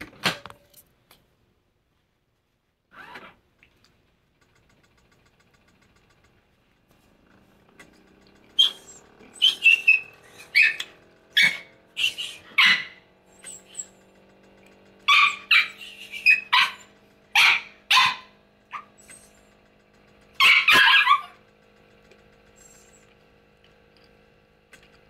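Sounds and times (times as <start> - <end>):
dog barking: 8.6 - 13.8, 15.1 - 19.2, 20.4 - 21.4.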